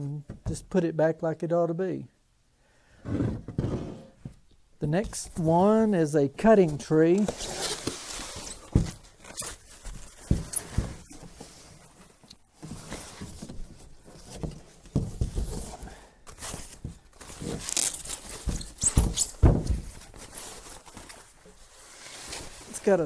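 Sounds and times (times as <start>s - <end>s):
cardboard box scraping and knocking: 3.1s - 4.2s
packing wrap rustling: 16.5s - 19.2s.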